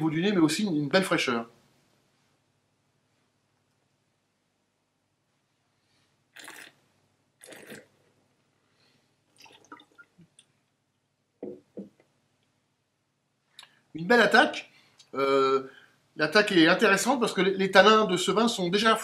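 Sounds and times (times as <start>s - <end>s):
person slurping wine: 6.4s - 6.8s, 7.4s - 8.0s
person spitting into bucket: 6.4s - 6.8s, 7.4s - 8.1s.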